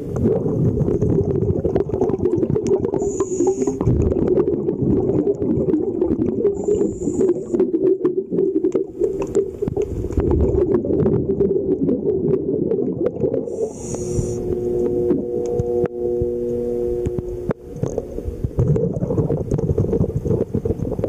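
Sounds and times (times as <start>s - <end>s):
bubbling of exhaled air: 0.0s - 21.0s
regulator inhale hiss: 3.0s - 3.8s, 6.6s - 7.6s, 13.5s - 14.7s
clicks: 13.9s - 18.6s.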